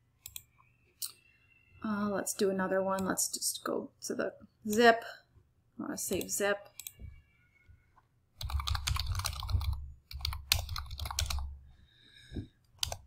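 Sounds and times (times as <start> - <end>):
typing on computer keyboard: 8.4 - 11.5, 12.8 - 13.0.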